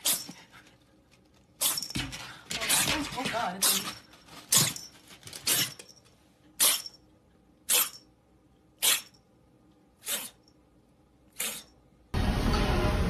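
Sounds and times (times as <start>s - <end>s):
kitten sneezing: 0.0s - 0.4s, 1.6s - 1.8s, 5.5s - 5.8s, 6.6s - 7.0s, 7.7s - 8.0s, 8.8s - 9.2s, 10.0s - 10.4s, 11.3s - 11.8s.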